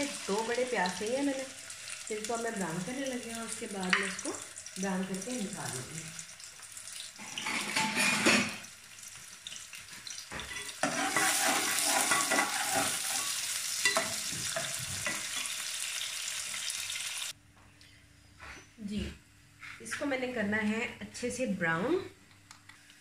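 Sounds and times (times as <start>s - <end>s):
onions sizzling in hot oil: 0.0s - 17.4s
metal spoon scraping a pot: 10.5s - 14.1s.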